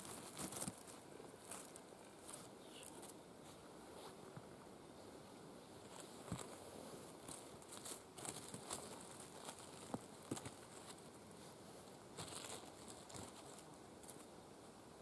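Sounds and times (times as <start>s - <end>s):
dry leaves rustling: 0.0s - 3.2s, 5.8s - 14.3s.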